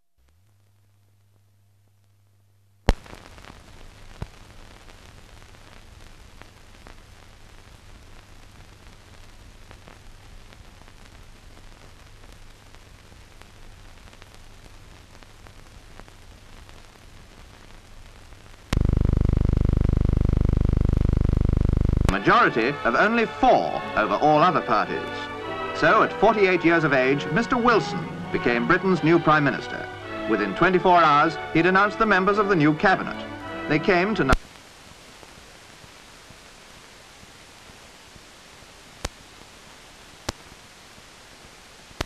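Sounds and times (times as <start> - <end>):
film soundtrack hiss and crackle: 0.0 - 42.0
loud steady buzzing tone: 18.6 - 22.1.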